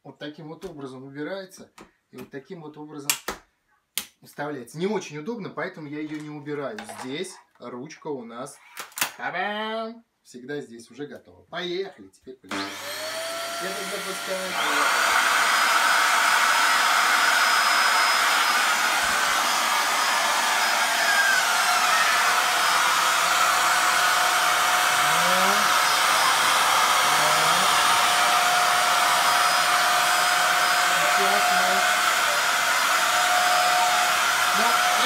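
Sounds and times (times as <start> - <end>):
vacuum cleaners running: 12.5 - 35.0.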